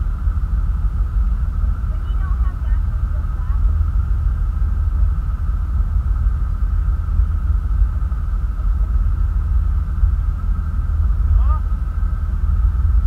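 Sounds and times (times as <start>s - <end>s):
faint steady whine: 0.0s - 13.0s
motorboat engine rumbling: 0.0s - 13.0s.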